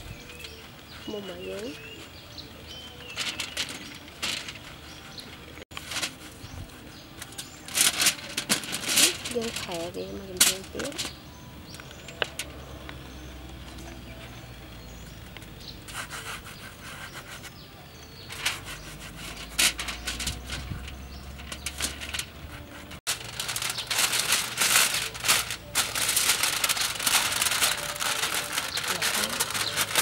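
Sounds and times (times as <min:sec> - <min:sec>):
foil bag crinkling: 0:02.8 - 0:11.2, 0:23.1 - 0:30.0
crackles of pressing honeycomb: 0:02.9 - 0:14.4, 0:18.2 - 0:30.0.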